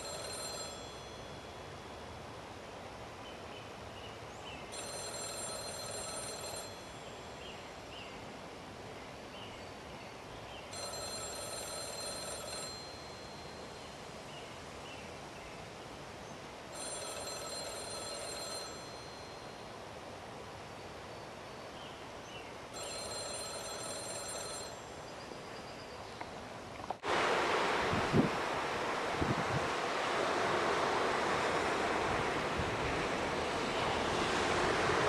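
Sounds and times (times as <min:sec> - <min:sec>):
payphone ringing: 0:00.0 - 0:02.0, 0:04.7 - 0:07.4, 0:10.7 - 0:13.8, 0:16.7 - 0:19.7, 0:22.8 - 0:24.9.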